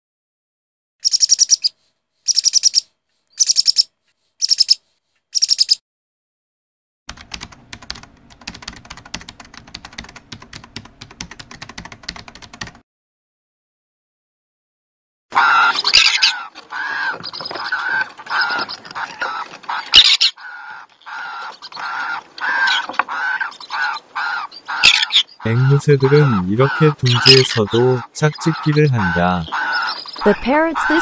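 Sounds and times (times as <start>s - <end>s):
parrot chattering: 1.0s - 1.7s, 2.3s - 2.8s, 3.4s - 3.8s, 4.4s - 4.8s, 5.4s - 5.8s, 24.3s - 31.0s
rapid clicking: 7.1s - 12.8s.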